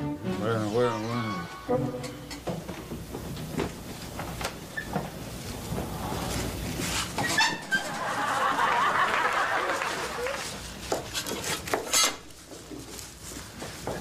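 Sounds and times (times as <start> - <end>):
audience laughing: 7.8 - 10.5.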